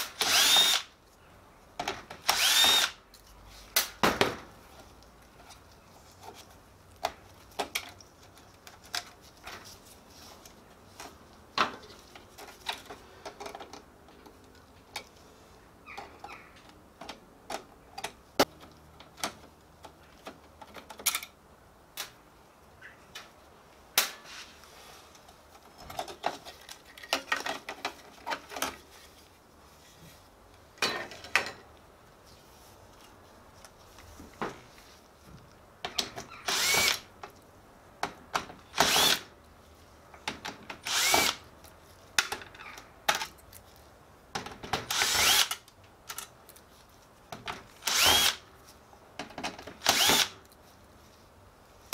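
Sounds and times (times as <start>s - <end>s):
cordless drill whirring: 0.1s - 0.9s, 2.2s - 3.0s, 36.5s - 37.0s, 38.8s - 39.2s, 40.9s - 41.4s, 44.9s - 45.6s, 47.8s - 48.4s, 49.8s - 50.3s
tools and parts clattering: 25.5s - 28.8s, 30.8s - 31.7s.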